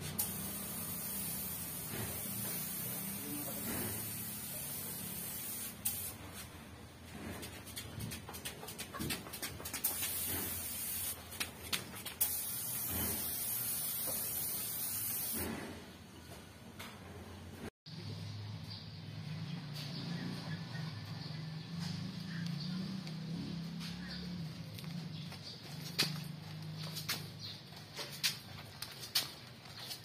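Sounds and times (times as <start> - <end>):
paint spray gun hissing: 0.0 - 6.2, 9.8 - 11.2, 12.1 - 15.6.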